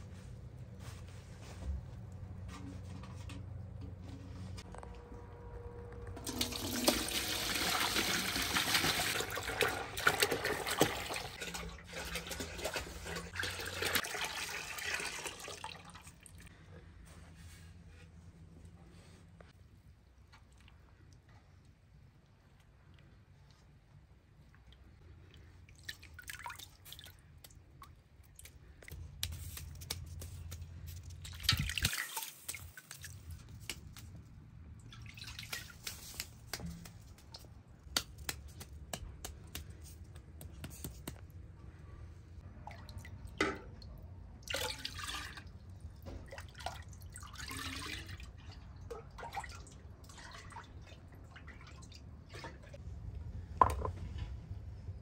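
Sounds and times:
water splashing and dripping: 0:06.2 - 0:16.5, 0:24.6 - 0:38.7, 0:42.6 - 0:52.8.

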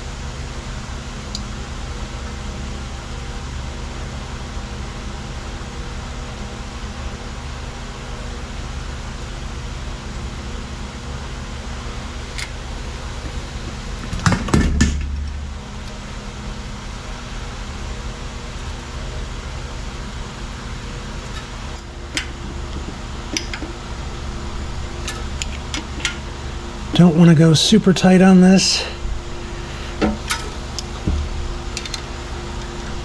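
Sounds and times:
steady low hum: 0:00.0 - 0:33.0
metal clatter with thump: 0:14.0 - 0:15.5, 0:30.0 - 0:32.0.

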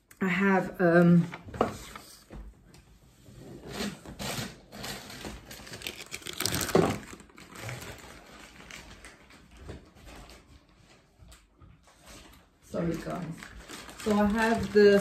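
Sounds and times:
plastic packet crinkling: 0:04.7 - 0:10.6, 0:12.7 - 0:15.0.

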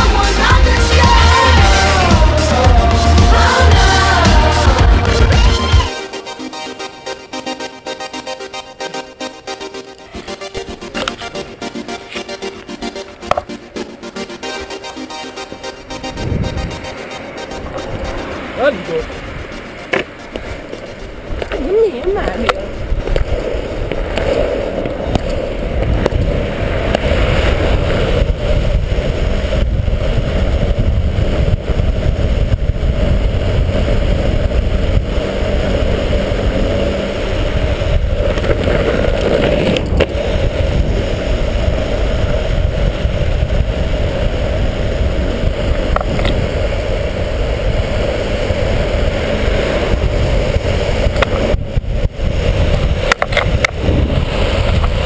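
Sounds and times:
longboard wheels rolling on asphalt: 0:00.0 - 0:55.0
wind buffeting microphone: 0:15.8 - 0:55.0.

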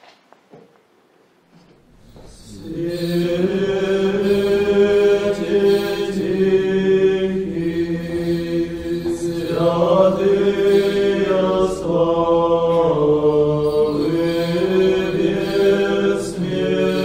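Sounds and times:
voices chanting long notes: 0:02.1 - 0:17.0.

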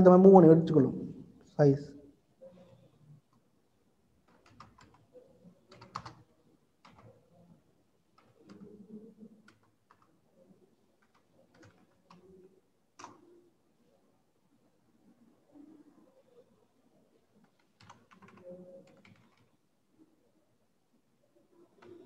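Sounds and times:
faint keyboard typing: 0:02.4 - 0:13.6, 0:15.7 - 0:19.7, 0:21.4 - 0:22.0.

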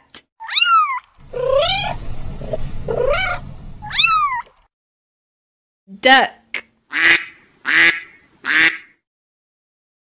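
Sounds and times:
cat meowing: 0:00.4 - 0:02.0, 0:02.9 - 0:04.5
low rough noise: 0:01.2 - 0:04.4.

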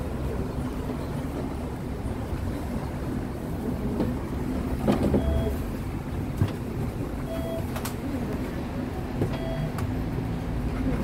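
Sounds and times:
tram low rumble: 0:00.0 - 0:11.0
short beep: 0:05.2 - 0:05.6, 0:07.3 - 0:07.6, 0:09.4 - 0:09.7.

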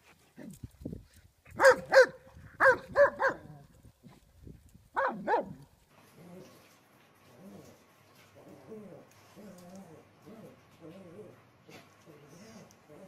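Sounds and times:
dog barking: 0:01.6 - 0:03.5, 0:05.0 - 0:05.6.

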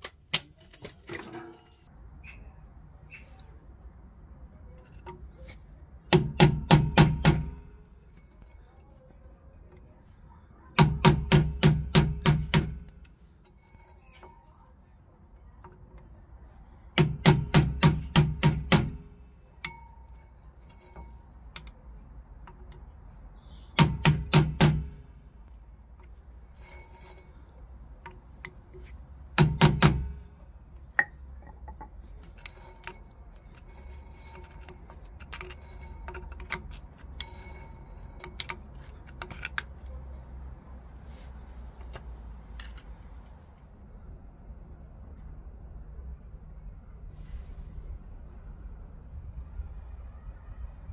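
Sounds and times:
screwdriver clicks and scrapes: 0:19.6 - 0:23.0, 0:24.0 - 0:30.3, 0:31.0 - 0:40.0, 0:41.7 - 0:43.0.

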